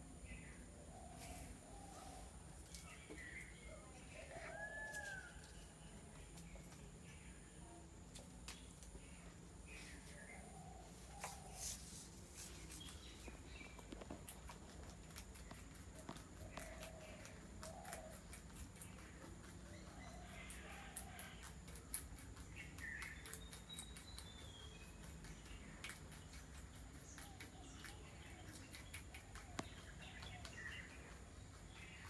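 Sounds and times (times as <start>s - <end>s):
distant birds chirping: 0.0s - 21.4s
low steady hum: 0.0s - 32.0s
light scattered ticks: 12.7s - 32.0s.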